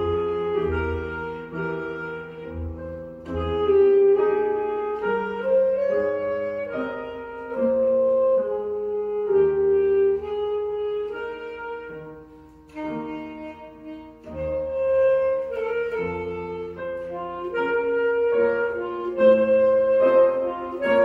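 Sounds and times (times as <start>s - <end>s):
lower accompaniment notes: 0.0s - 21.0s
saxophone solo melody: 0.0s - 21.0s.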